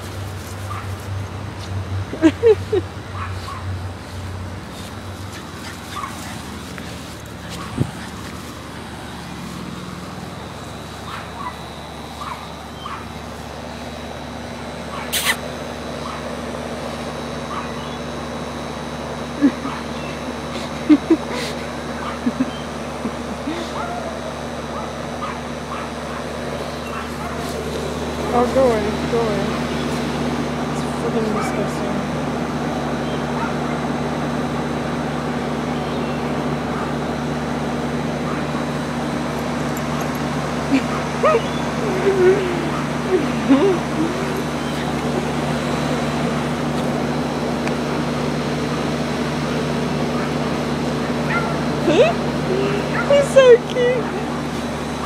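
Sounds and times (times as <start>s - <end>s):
mechanical hum: 0.0s - 55.0s
small dog yipping: 5.3s - 6.5s, 11.1s - 11.6s, 12.2s - 13.1s, 14.9s - 15.4s, 40.8s - 45.0s.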